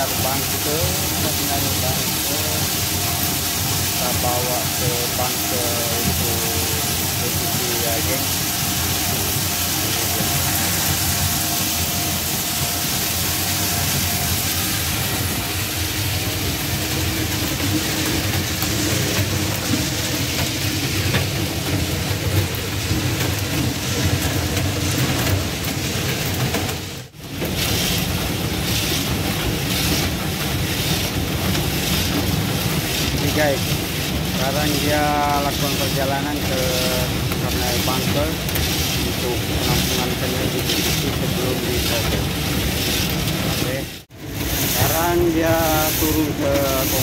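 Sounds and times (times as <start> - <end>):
nuts pouring down a metal chute: 0.0 - 15.2, 27.3 - 47.0
screw conveyor turning: 0.0 - 47.0.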